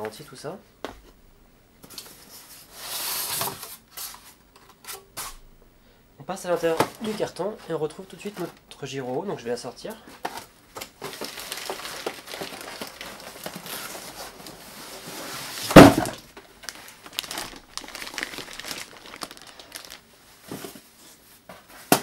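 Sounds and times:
plastic film crinkling and rustling: 10.2s - 21.5s
loud thump: 15.7s - 16.2s.

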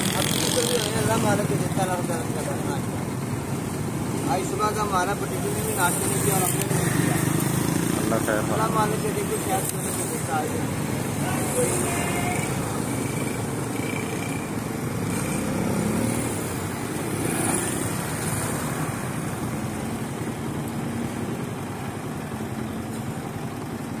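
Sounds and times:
road traffic hum: 0.0s - 24.0s.

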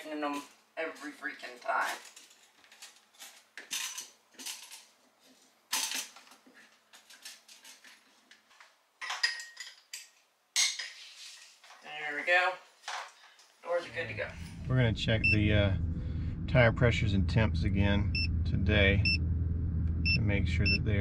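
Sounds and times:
glass jars and bottles clinking: 9.0s - 10.9s.

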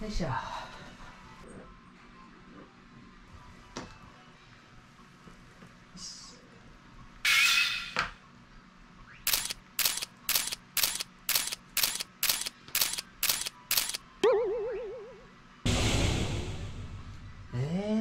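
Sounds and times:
sharp ticks: 9.3s - 14.0s
comic wobbling tone: 14.2s - 15.3s.

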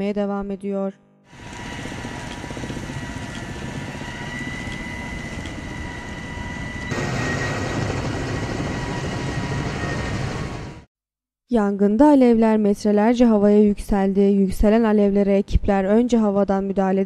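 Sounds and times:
helicopter engine and rotor: 1.3s - 10.9s
high whine: 1.3s - 10.9s.

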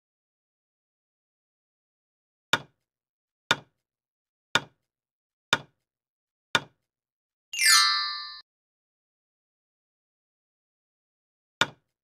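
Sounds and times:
bright chime: 7.6s - 8.4s
ringing sound sweeping down: 7.6s - 8.4s.

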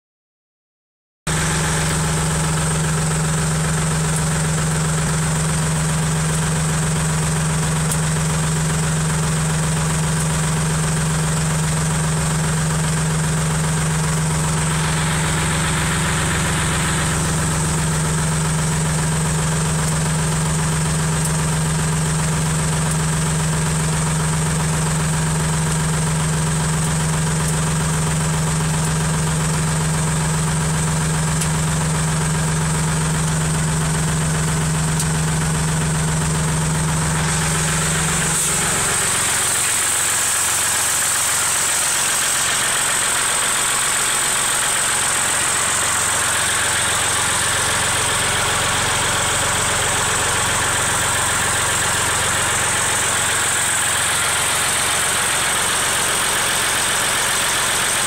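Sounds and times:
tractor engine idling: 1.3s - 58.0s
hiss: 37.1s - 58.0s.

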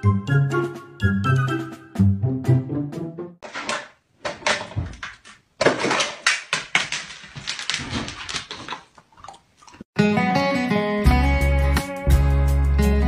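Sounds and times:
strummed guitar music: 10.0s - 13.0s.

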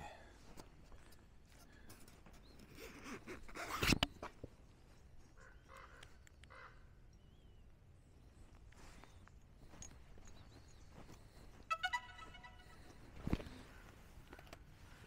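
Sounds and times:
thin bird chirp: 4.6s - 13.6s
bird calling: 5.2s - 14.1s.

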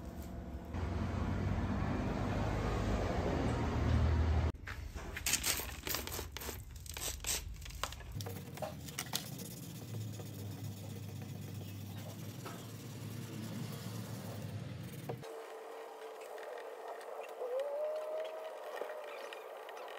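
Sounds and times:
brush scrubbing wet car paint: 8.2s - 17.5s.

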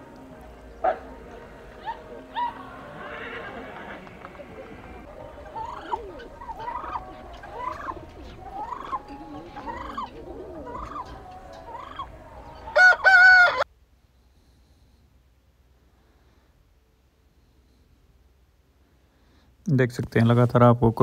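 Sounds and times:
fowl calling: 0.0s - 13.7s.

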